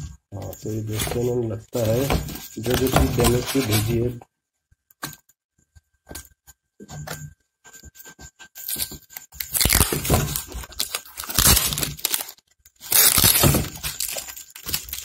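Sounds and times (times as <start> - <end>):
packing tape tearing: 8.6 - 15.0.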